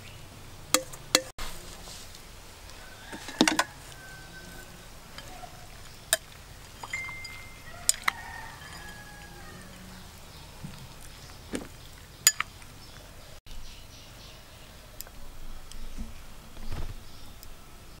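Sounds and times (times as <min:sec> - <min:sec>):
utensils clinking against bowl: 0:03.1 - 0:10.8, 0:12.2 - 0:12.6.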